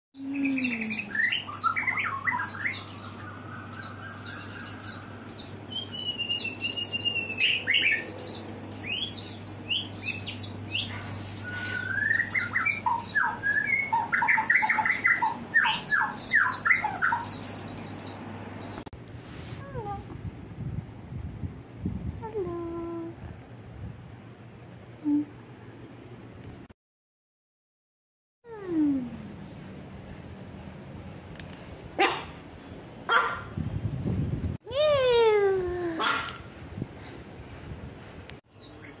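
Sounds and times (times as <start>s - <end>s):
songbird singing trills: 0.2s - 18.8s.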